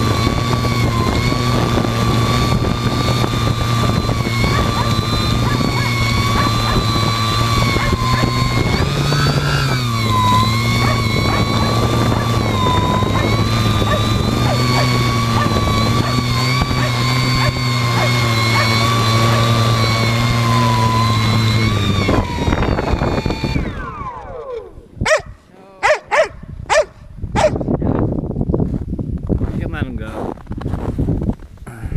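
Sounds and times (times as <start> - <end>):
drone propellers whirring: 0.0 - 25.1.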